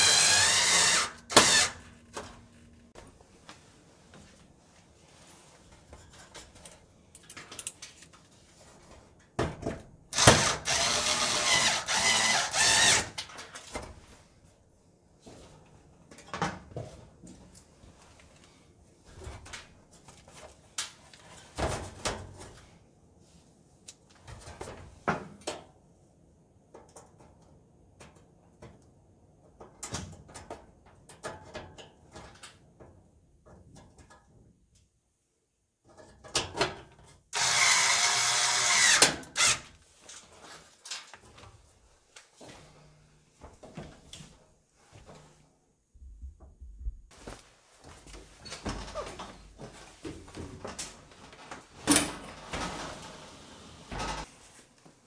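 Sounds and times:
cordless drill driving screws: 0.0 - 1.9, 10.2 - 13.2, 37.4 - 39.7.

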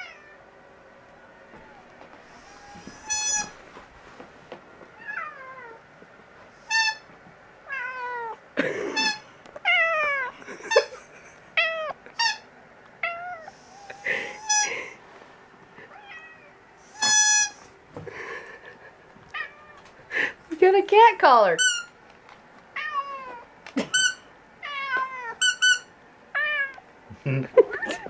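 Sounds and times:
cat meowing: 1.2 - 3.6, 7.7 - 8.4, 9.6 - 10.3, 13.0 - 14.7, 19.3 - 19.9, 22.8 - 23.5
squeaker toy squeaks: 3.0 - 3.5, 6.7 - 7.0, 12.2 - 12.4, 14.5 - 14.7, 17.0 - 17.6, 21.6 - 21.9, 23.9 - 24.2, 25.4 - 25.9.

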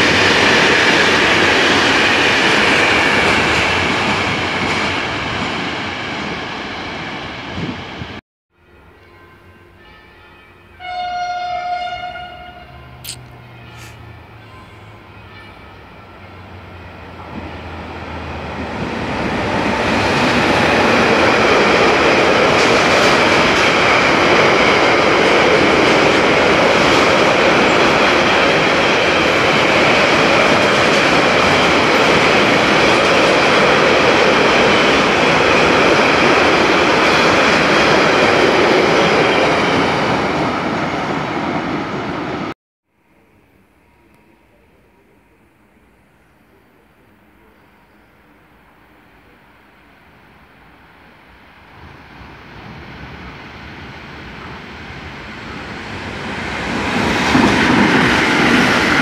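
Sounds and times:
train wheels on rails: 16.5 - 42.5, 51.6 - 59.0.

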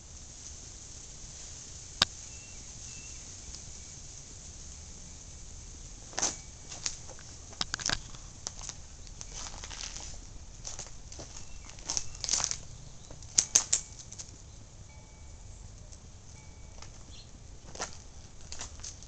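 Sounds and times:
outdoor background hiss: 0.0 - 19.0
short clicks and rustles: 6.2 - 14.4.

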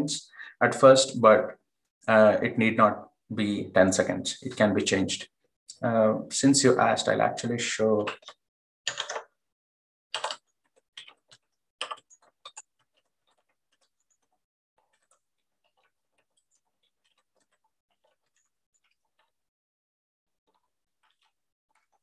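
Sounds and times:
typing on computer keyboard: 8.0 - 9.4, 10.1 - 14.3.

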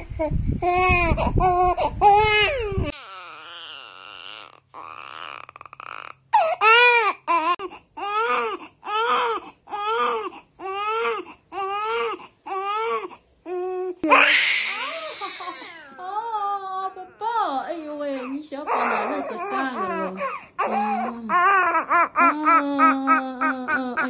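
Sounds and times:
newborn baby crying: 0.7 - 16.3, 18.1 - 24.0.

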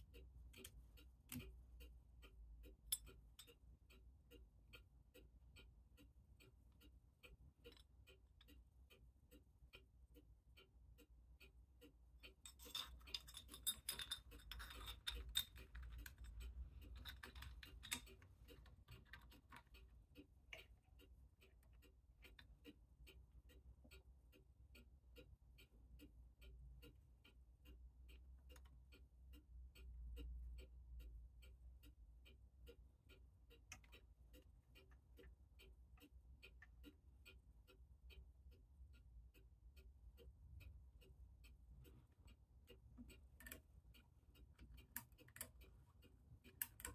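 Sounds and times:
faint steady ticking: 0.0 - 46.9
small metal parts clinking: 12.4 - 18.2.

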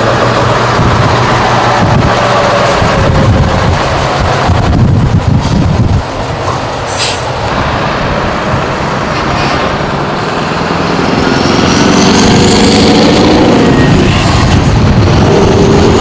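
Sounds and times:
diesel truck accelerating: 0.0 - 16.0
short air hiss: 6.9 - 7.4
rising whistle: 13.0 - 14.5.

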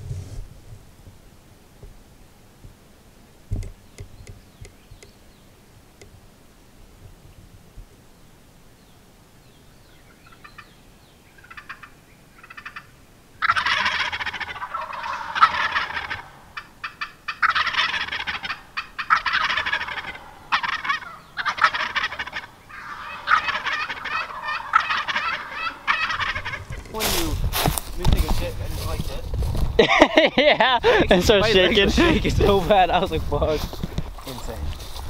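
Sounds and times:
wild turkey gobbling: 10.2 - 10.7, 11.4 - 27.1.

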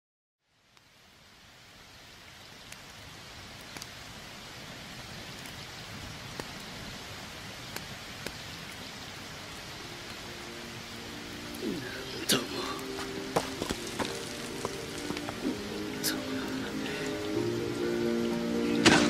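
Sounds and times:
steady rain: 0.4 - 19.0
sharp drip ticks: 7.6 - 8.8.

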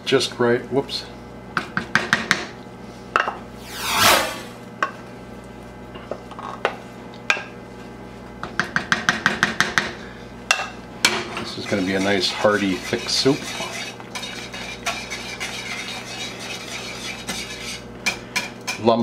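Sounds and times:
swish: 3.6 - 4.6
whisk and spoon scraping pot: 11.4 - 19.0.

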